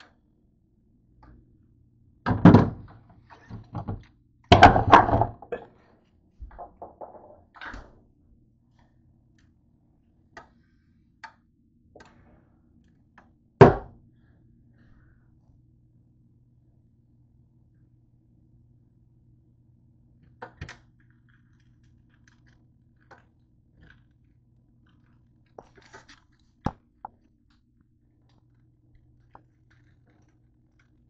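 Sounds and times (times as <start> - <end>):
thuds of hard objects set down: 3.6 - 5.5.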